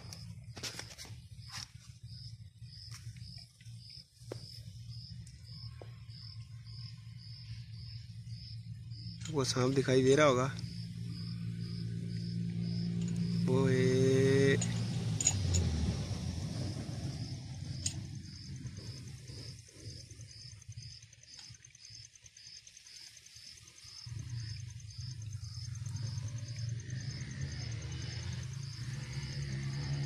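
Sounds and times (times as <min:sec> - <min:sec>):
insect chirping: 0:00.0 - 0:30.0
low rumble: 0:01.3 - 0:21.0.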